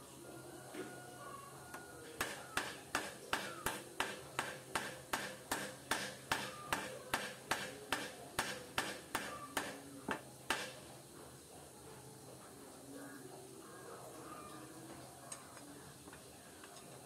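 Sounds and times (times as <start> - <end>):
hammer striking metal: 2.2 - 9.8.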